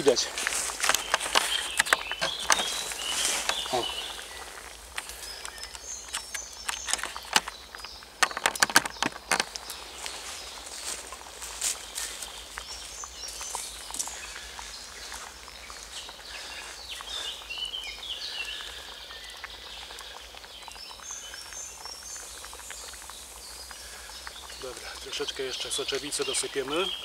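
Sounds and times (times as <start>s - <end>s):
birds chirping and trilling: 0.0s - 27.0s
small crackles and rustles: 0.0s - 27.0s.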